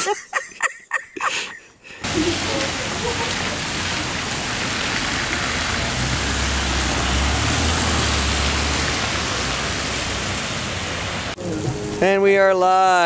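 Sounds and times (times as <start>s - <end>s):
vehicle low rumble: 2.0s - 12.2s
traffic hissing on wet street: 2.0s - 13.0s.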